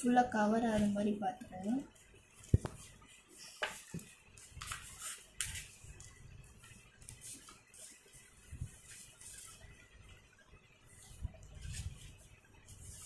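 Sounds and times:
paper rustling: 2.4s - 10.2s, 10.9s - 13.0s.

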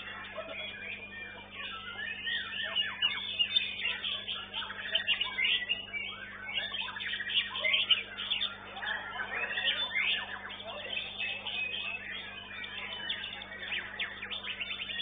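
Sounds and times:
faint low hum: 0.0s - 15.0s
songbird singing: 0.0s - 15.0s.

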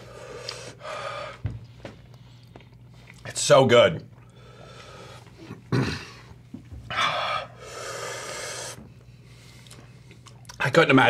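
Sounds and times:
man breathing hard: 0.0s - 2.0s, 4.3s - 5.5s, 6.9s - 10.0s.

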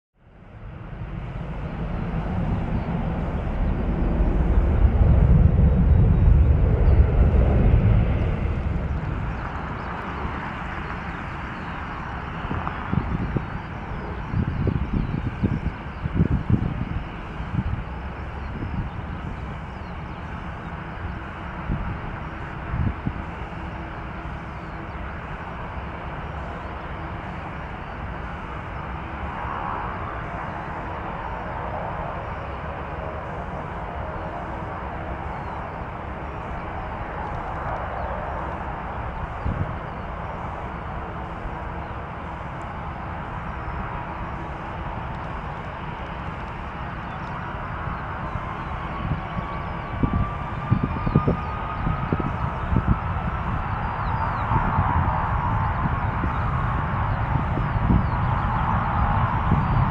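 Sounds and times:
jet airliner takeoff rumble: 0.2s - 59.9s.

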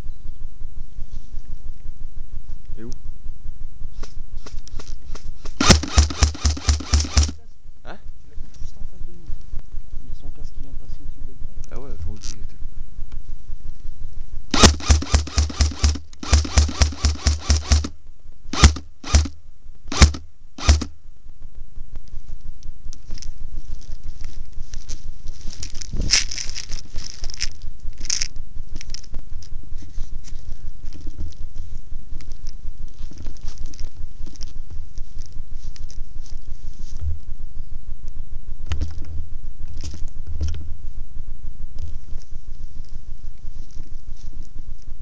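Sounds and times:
rustling through dry grass: 3.9s - 7.4s, 13.3s - 19.3s, 21.8s - 37.7s, 41.6s - 45.0s
airsoft gun firing: 5.6s - 7.4s, 14.5s - 17.9s, 18.5s - 20.9s
wind on microphone: 25.8s - 26.3s.

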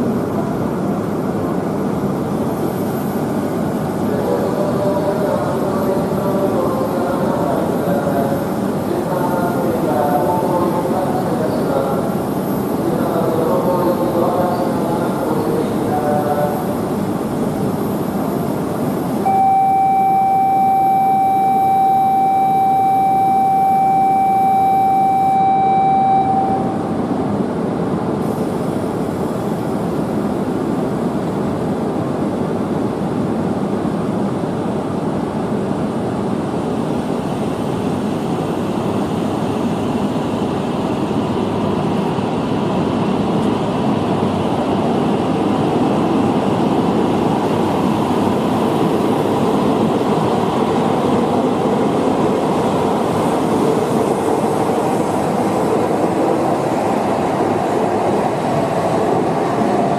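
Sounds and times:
steady buzzer tone: 19.2s - 26.9s
train pulling out: 42.8s - 59.9s.

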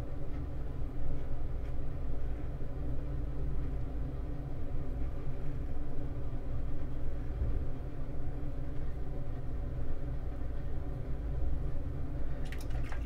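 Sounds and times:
water pump humming: 12.2s - 13.0s.

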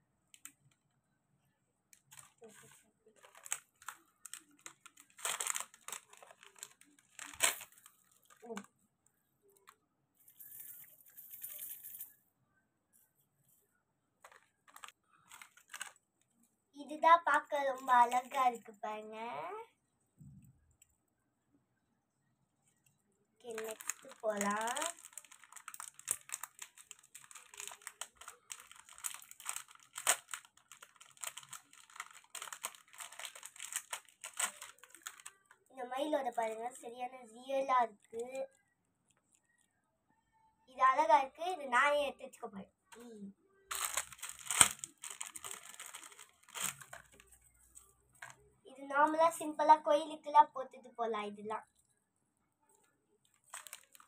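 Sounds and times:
gift wrap paper tearing: 2.1s - 8.6s, 14.6s - 16.0s, 23.4s - 35.5s, 43.7s - 47.3s, 53.4s - 54.0s.

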